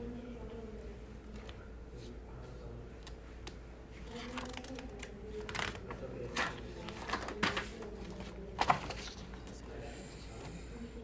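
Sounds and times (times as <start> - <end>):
paper page rustling and turning: 4.0 - 9.7
sharp paper crinkles: 4.1 - 9.6.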